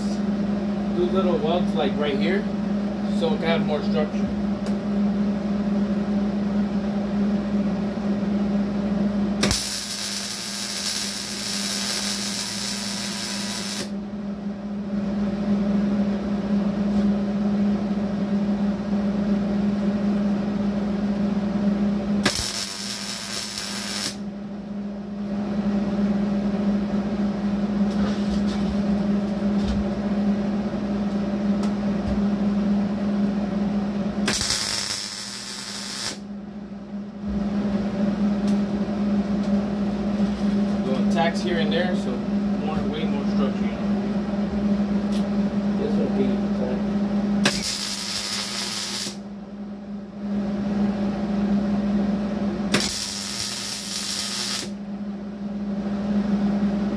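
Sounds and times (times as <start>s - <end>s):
steady low hum: 0.0s - 56.9s
welding arc crackle and hiss: 9.4s - 13.9s, 22.2s - 24.2s, 34.3s - 36.2s, 47.4s - 49.2s, 52.7s - 54.8s.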